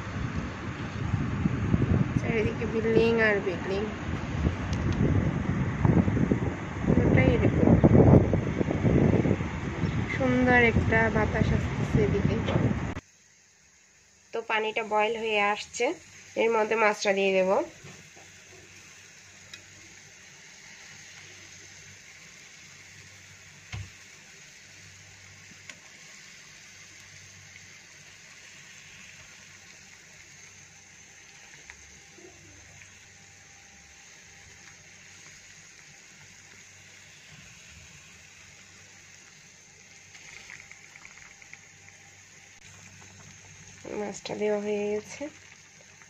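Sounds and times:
curry simmering in a pan: 16.0 - 46.0.

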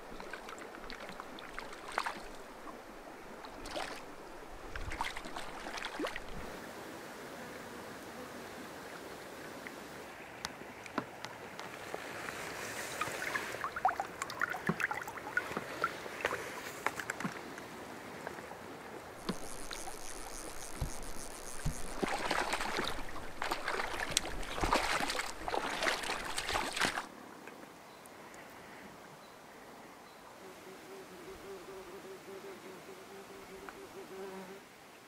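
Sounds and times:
stream water splashing and gurgling: 0.0 - 7.1, 8.6 - 27.4.

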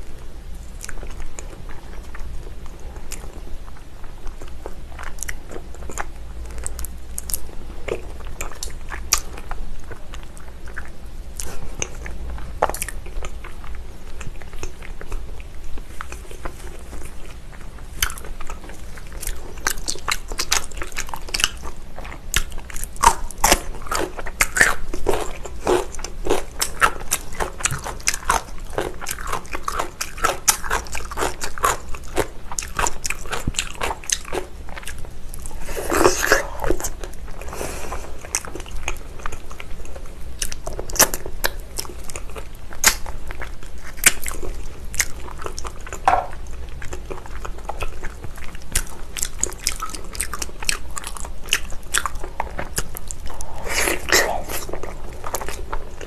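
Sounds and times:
close chewing and crunching: 0.0 - 56.0.

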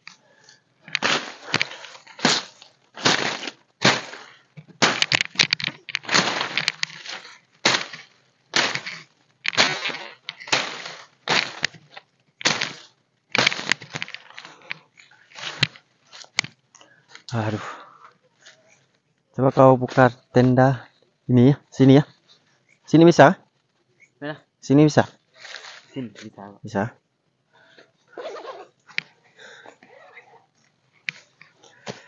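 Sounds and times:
dry leaves crunching and rustling: 0.9 - 14.6, 15.3 - 16.4.

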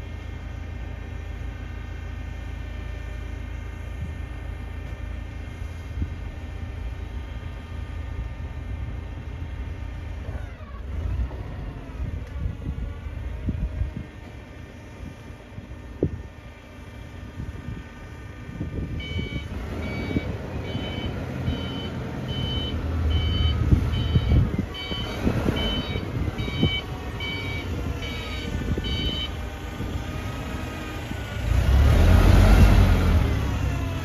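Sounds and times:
forklift engine running: 0.0 - 34.0
reversing alarm beeping: 18.9 - 29.4.

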